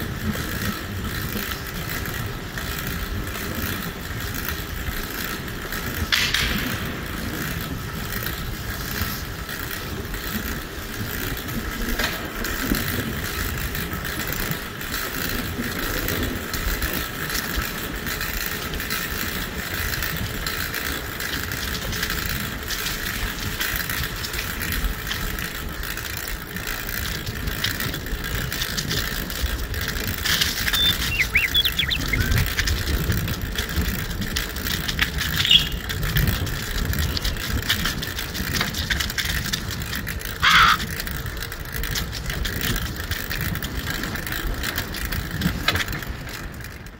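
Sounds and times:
bicycle tyres rolling on pavement: 0.0 - 46.9
wind on microphone: 27.3 - 39.0
short high squeaks: 30.3 - 32.4, 35.4 - 35.8.

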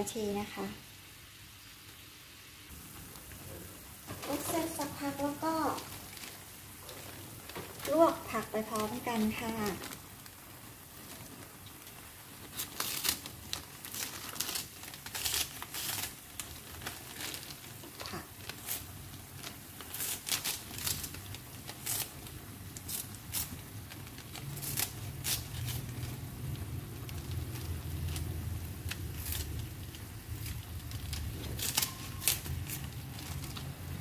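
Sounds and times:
scissors snipping cabbage leaves: 13.9 - 16.1, 21.8 - 22.1, 30.4 - 33.6.

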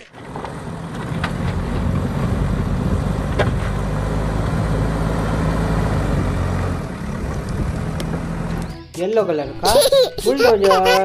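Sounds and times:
diesel engine under load: 0.0 - 8.8.

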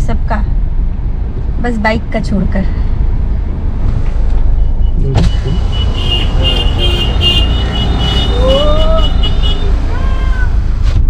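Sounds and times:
car cabin low rumble: 3.8 - 11.0.

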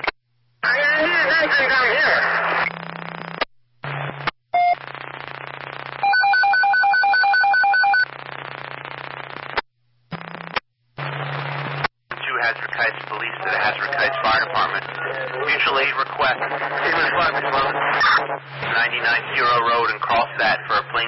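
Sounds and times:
radio static bursts: 0.0 - 6.1, 8.0 - 21.0
steady hum: 8.1 - 21.0.

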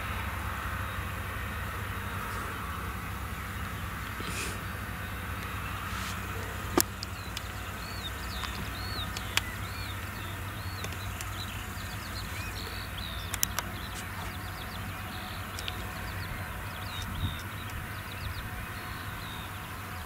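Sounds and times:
distant farm machinery rumble: 0.0 - 20.0
small birds chirping: 0.0 - 20.0
sharp clicks: 5.3 - 16.2.

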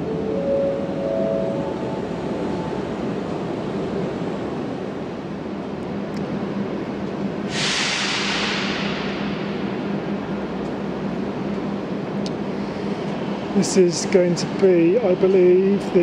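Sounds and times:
electric train rumble and hum: 0.0 - 16.0
loud hiss: 7.5 - 10.0.

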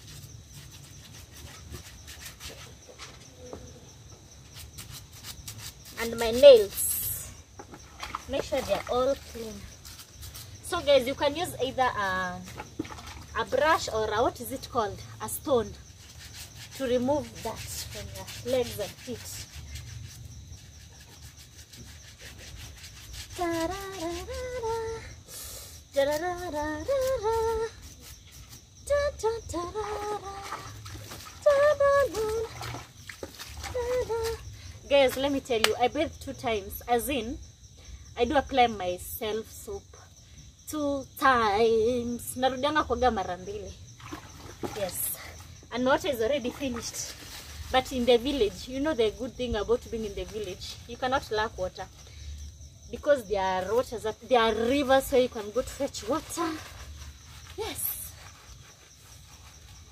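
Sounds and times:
faint scrubbing: 0.0 - 3.3, 4.4 - 24.9, 44.0 - 50.9, 53.7 - 59.9
brush scrubbing wet feet: 15.5 - 24.3, 29.8 - 34.4, 54.4 - 59.9
woman singing wordless tune: 23.3 - 25.3, 25.9 - 27.8, 28.8 - 32.6, 33.6 - 37.3.

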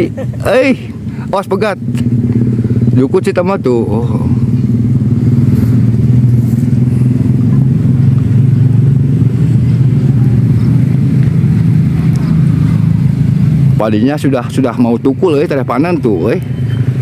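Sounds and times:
small engine humming: 3.6 - 13.3.

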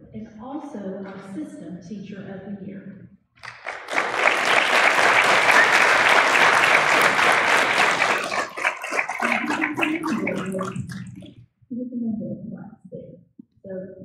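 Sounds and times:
audience applauding: 3.4 - 11.3.

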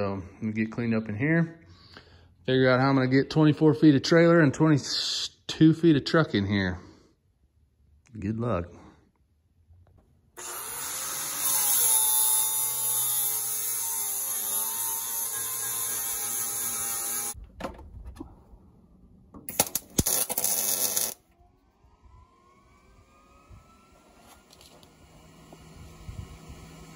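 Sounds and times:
welding hiss and buzz: 10.4 - 17.4, 19.5 - 21.2.

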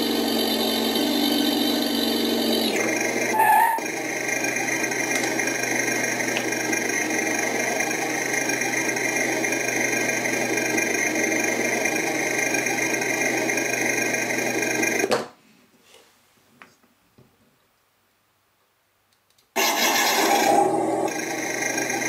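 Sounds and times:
synthesized engine sound: 0.0 - 15.1, 19.6 - 22.0.

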